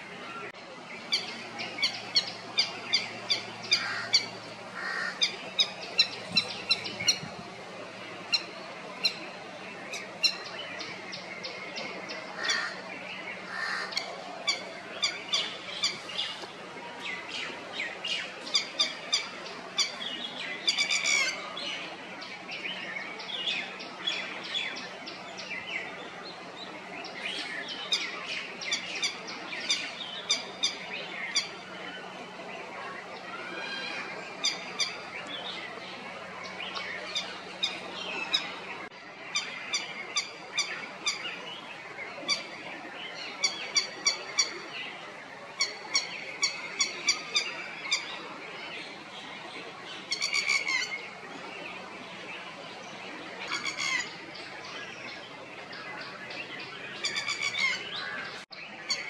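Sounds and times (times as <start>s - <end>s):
lapwing alarm calls: 1.1s - 7.4s, 53.4s - 54.2s, 56.9s - 59.0s.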